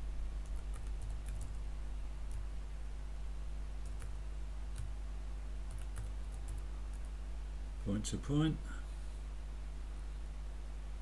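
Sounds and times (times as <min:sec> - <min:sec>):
low electrical hum: 0:00.0 - 0:11.0
keyboard keystrokes: 0:05.7 - 0:07.1.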